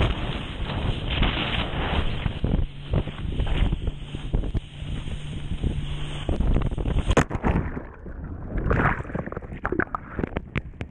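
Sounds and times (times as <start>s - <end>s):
wind on microphone: 0.0s - 10.9s
rushing water: 2.4s - 10.9s
underwater bubbling: 6.3s - 10.9s
sharp splash: 6.8s - 10.4s
underwater clicks: 8.6s - 10.9s.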